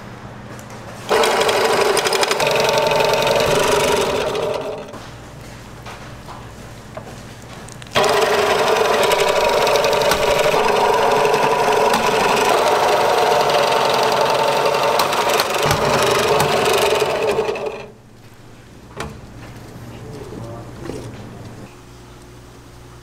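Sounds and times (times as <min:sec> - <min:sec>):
machine fast clicking: 0:01.1 - 0:05.0, 0:07.9 - 0:18.0.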